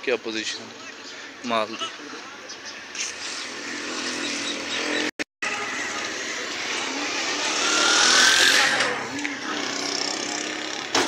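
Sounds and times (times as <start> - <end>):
traffic noise: 0.0 - 11.0
motor vehicle passing: 3.0 - 10.9.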